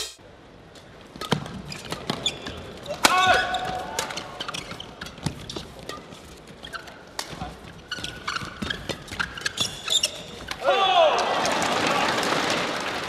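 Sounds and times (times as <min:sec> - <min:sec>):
shoes squeaking on floor: 0:01.4 - 0:02.7, 0:03.3 - 0:10.6.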